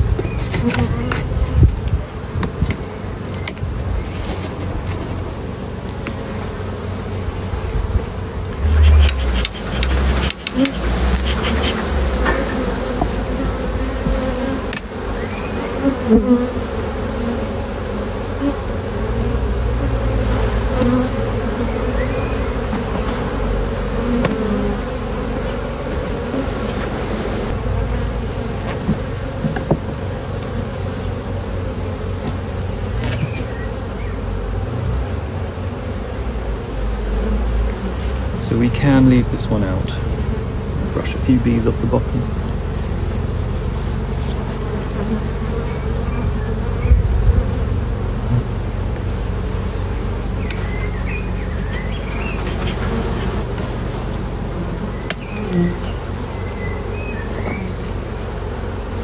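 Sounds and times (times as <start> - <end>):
honeybees buzzing: 0.0 - 59.0.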